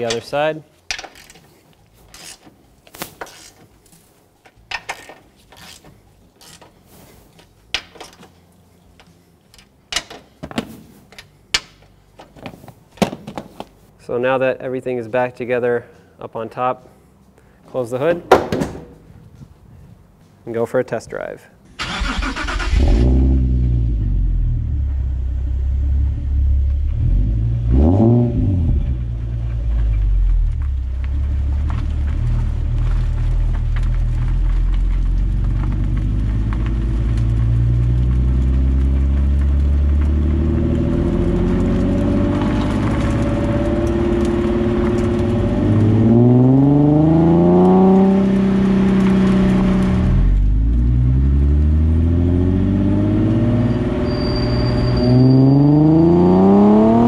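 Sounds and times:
car exhaust revving: 0:22.4 - 0:57.0.

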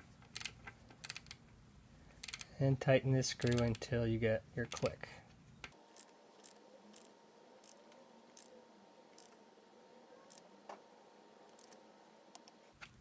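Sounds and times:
torque wrench clicks: 0:02.2 - 0:02.5, 0:06.0 - 0:08.5, 0:09.2 - 0:09.4, 0:11.5 - 0:12.5.

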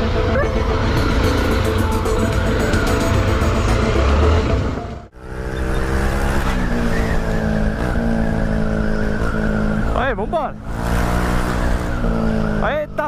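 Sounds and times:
motorcycle engine running: 0:00.0 - 0:06.3.

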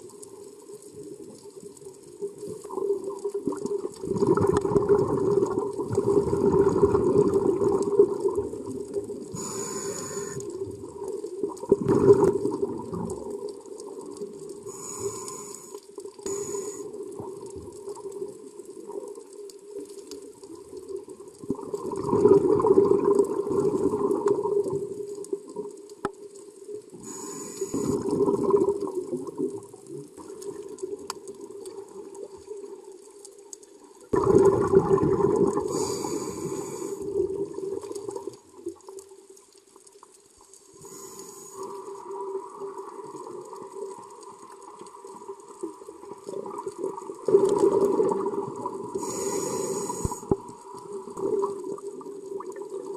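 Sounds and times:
underwater exhaled bubbles rumbling: 0:00.0 - 0:15.4, 0:17.0 - 0:26.0, 0:26.7 - 0:33.2, 0:34.0 - 0:39.0, 0:41.6 - 0:52.9
regulator hissing: 0:09.4 - 0:10.4, 0:14.8 - 0:16.9.

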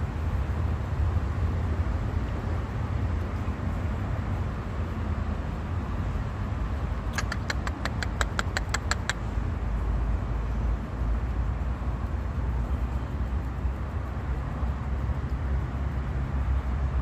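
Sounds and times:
small animal chirping: 0:07.0 - 0:09.4.

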